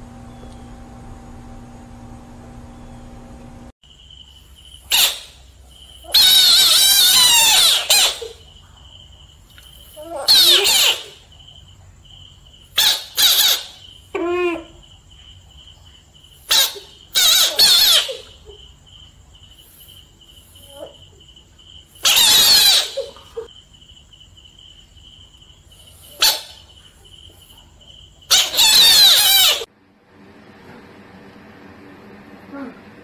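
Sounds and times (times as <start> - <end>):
faint high whine: 0.0 - 6.1
frogs screeching: 3.9 - 9.0, 9.6 - 11.6, 12.6 - 15.1, 15.7 - 23.9, 25.5 - 29.7.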